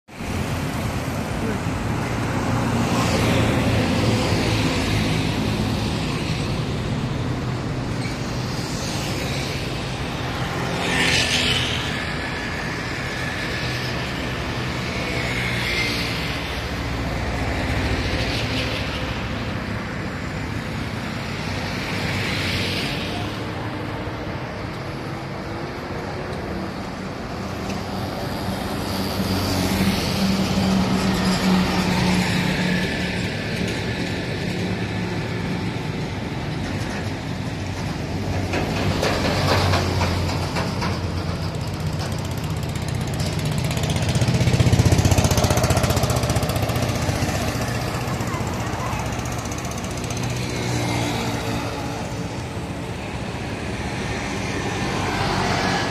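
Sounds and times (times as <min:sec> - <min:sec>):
vehicles passing: 0:00.0 - 0:55.9
traffic rumble: 0:00.1 - 0:55.9
auto-rickshaw engine passing: 0:00.4 - 0:55.9.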